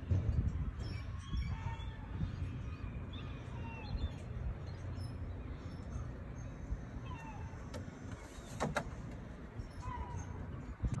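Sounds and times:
wind on microphone: 0.0s - 4.6s, 9.6s - 11.0s
faint chirping bird calls: 0.0s - 11.0s.

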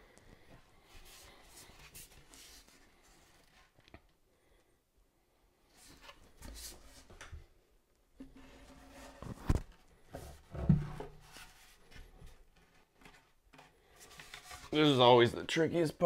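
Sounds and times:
wooden shelf rubbing and scraping: 8.2s - 15.0s.

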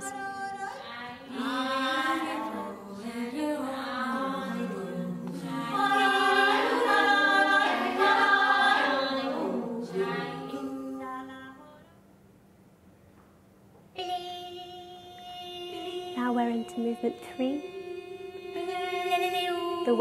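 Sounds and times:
voices singing unaccompanied: 0.0s - 12.0s, 13.9s - 20.0s.

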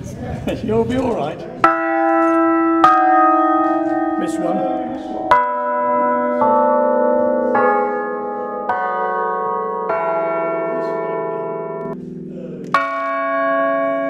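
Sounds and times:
bells struck and ringing: 1.6s - 14.0s.

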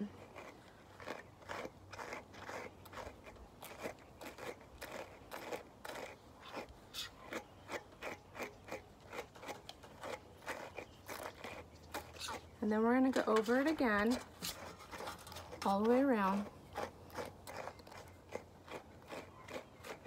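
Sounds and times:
brush scratching through fur: 0.0s - 7.4s, 9.2s - 12.5s, 13.1s - 16.9s.

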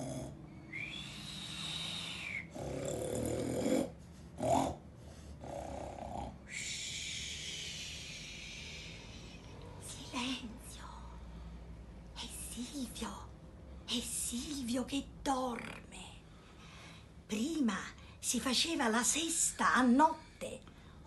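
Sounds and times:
man snoring: 0.0s - 0.4s, 2.5s - 4.8s.

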